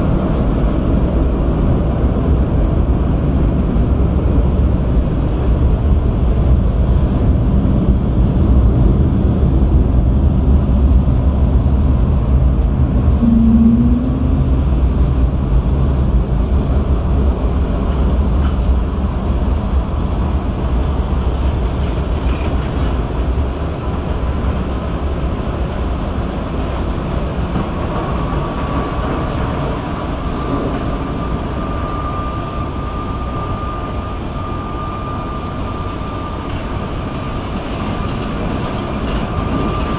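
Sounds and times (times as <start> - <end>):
faint steady whine: 13.2 - 15.8.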